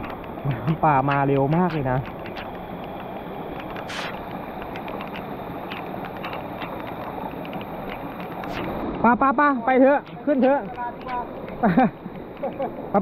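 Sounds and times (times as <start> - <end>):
small ticks: 0.0 - 8.9, 9.7 - 13.0
flood water rushing: 3.5 - 9.1.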